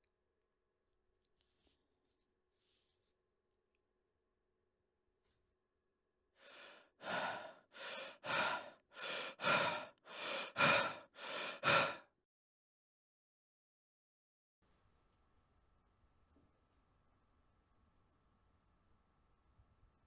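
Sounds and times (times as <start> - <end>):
man breathing heavily: 6.4 - 12.1.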